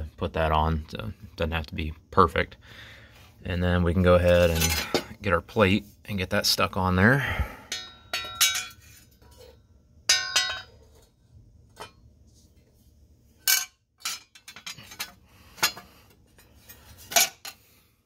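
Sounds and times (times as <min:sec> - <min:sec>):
metal plate clanking: 0:10.1 - 0:11.0.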